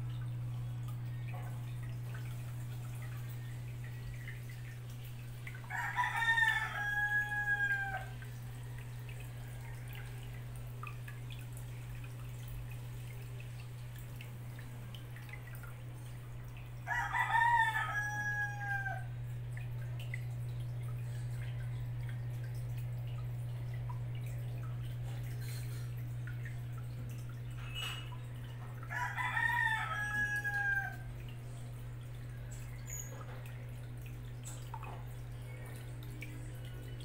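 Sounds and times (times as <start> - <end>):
aquarium filter hum: 0.0 - 37.0
water dripping: 0.0 - 37.0
rooster crowing: 5.7 - 8.6, 16.8 - 19.1, 28.9 - 31.1.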